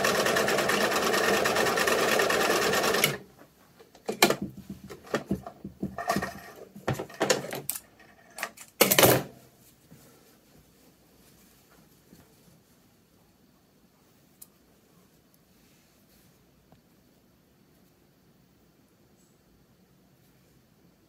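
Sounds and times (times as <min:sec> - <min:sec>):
sewing machine stitching: 0:00.0 - 0:03.2.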